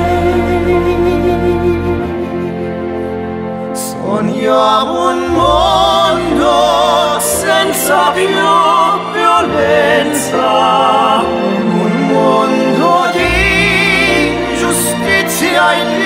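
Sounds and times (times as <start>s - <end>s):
instrumental accompaniment: 0.0s - 16.0s
ballad singing with vibrato: 3.7s - 16.0s.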